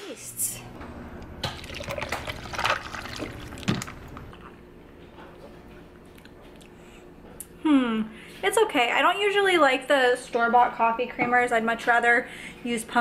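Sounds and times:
coffee pouring over ice: 0:01.4 - 0:04.3
ice clinking: 0:01.4 - 0:04.3.

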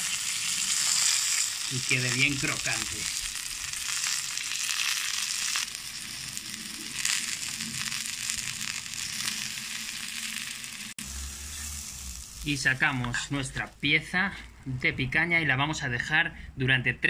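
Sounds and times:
meat sizzling on a griddle: 0:00.0 - 0:13.2.

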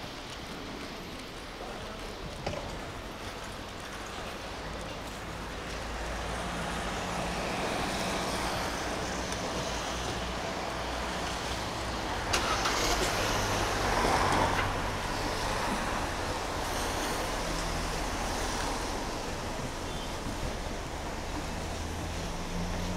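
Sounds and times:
traffic rumble on wet road: 0:00.0 - 0:22.9
car passing close: 0:06.3 - 0:22.9.

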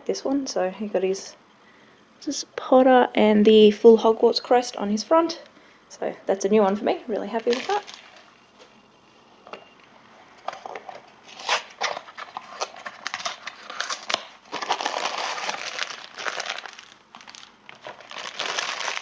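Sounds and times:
foil packaging crinkling and tearing: 0:07.3 - 0:08.3, 0:10.7 - 0:19.0.

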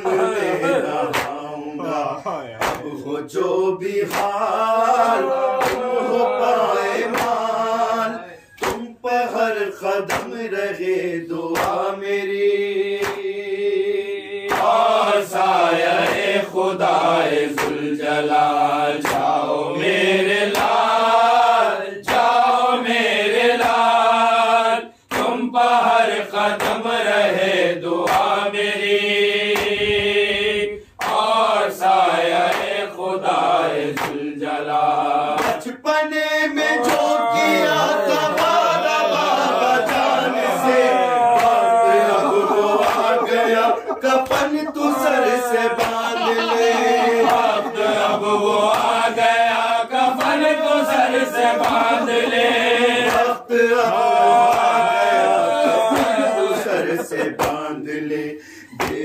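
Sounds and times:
lead reciter chanting: 0:00.0 - 0:59.0
men chanting in unison: 0:00.0 - 0:59.0.

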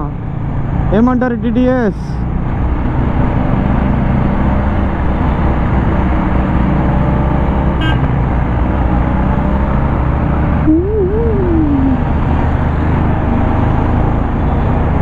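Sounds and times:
horn beep: 0:07.8 - 0:08.0.

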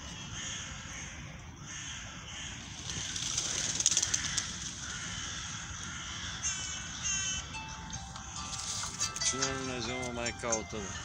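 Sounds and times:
gulls and crows calling: 0:00.0 - 0:11.0
outdoor background hiss: 0:00.0 - 0:11.0
rapid patter of sharp clicks: 0:02.8 - 0:04.9.

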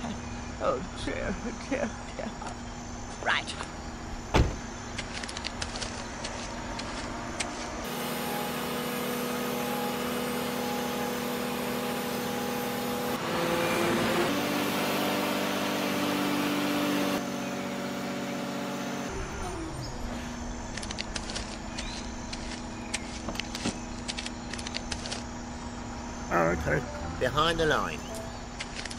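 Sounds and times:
small electric motor whirring: 0:18.8 - 0:25.4.

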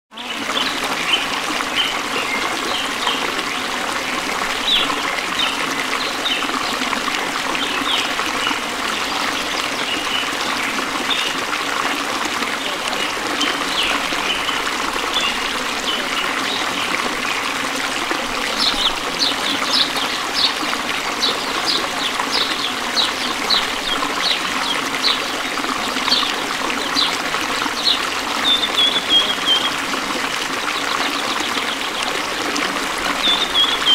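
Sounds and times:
stream water babbling: 0:00.1 - 0:33.9.

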